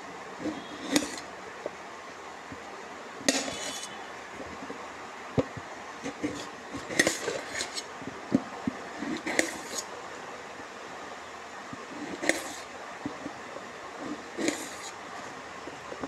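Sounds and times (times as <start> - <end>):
scraping rustles: 3.3 - 4.8, 6.0 - 8.0, 8.9 - 9.9.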